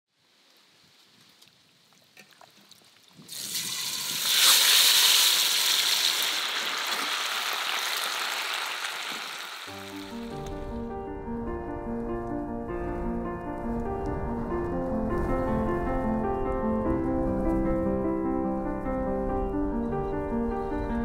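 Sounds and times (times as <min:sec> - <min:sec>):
meat sizzling in hot oil: 0:03.3 - 0:10.4
piano music: 0:09.6 - 0:21.0.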